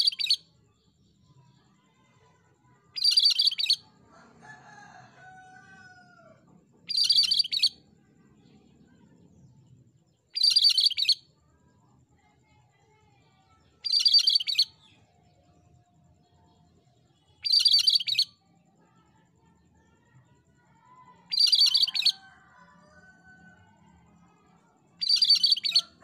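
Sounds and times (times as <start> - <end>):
bird singing: 0.0 - 1.8, 2.6 - 11.4, 13.8 - 19.0, 20.7 - 23.7, 24.3 - 26.0.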